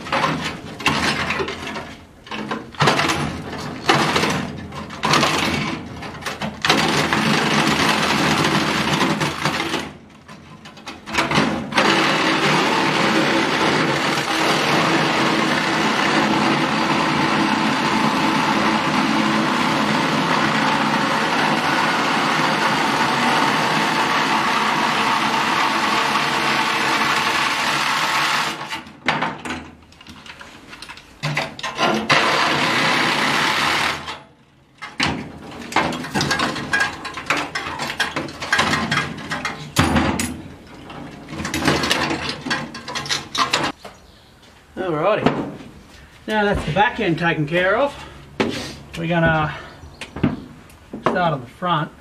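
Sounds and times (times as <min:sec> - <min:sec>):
cordless drill on sheet metal: 0:11.6 - 0:28.9, 0:31.8 - 0:34.4
metal tools clanking: 0:34.8 - 0:43.8.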